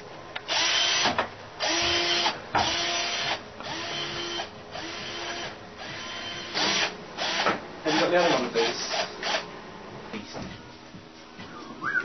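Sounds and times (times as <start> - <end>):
cordless drill bursts: 0.5 - 9.4.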